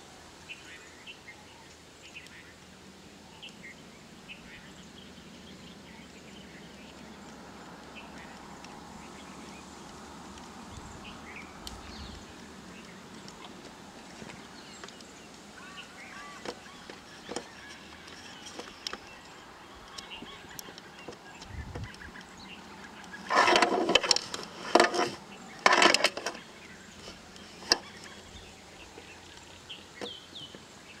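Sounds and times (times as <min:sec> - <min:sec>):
faint birdsong: 0:00.0 - 0:31.0.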